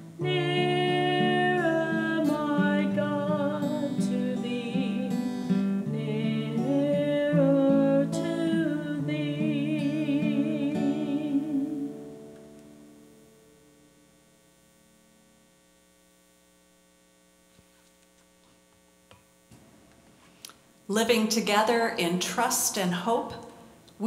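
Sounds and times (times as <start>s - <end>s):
strummed acoustic guitar: 0.0s - 13.5s
faint mains hum: 0.0s - 24.0s
woman singing: 0.2s - 12.1s.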